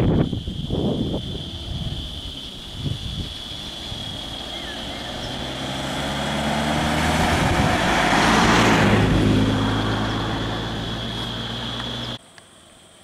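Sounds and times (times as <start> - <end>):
vehicle driving past: 3.4 - 12.2.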